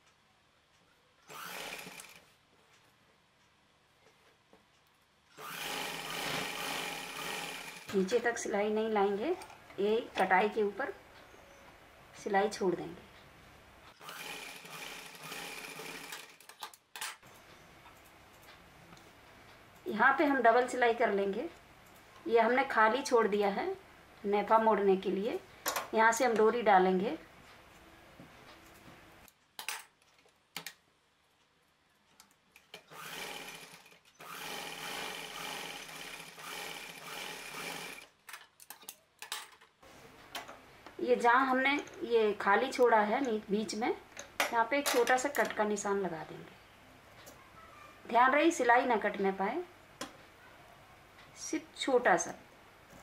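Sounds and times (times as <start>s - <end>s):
sewing machine stitching: 1.3s - 2.3s, 5.4s - 8.1s, 14.0s - 16.6s, 32.7s - 38.1s.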